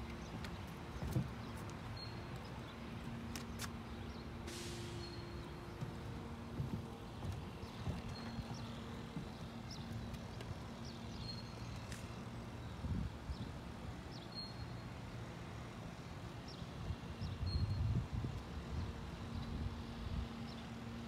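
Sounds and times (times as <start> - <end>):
footsteps on boat deck: 0.0 - 12.6.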